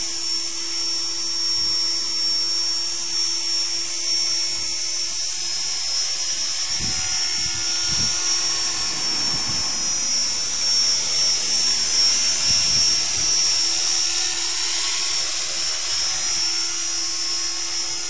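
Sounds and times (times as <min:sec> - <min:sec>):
toy helicopter motor whine: 0:00.0 - 0:18.0
rotor noise: 0:06.4 - 0:15.0.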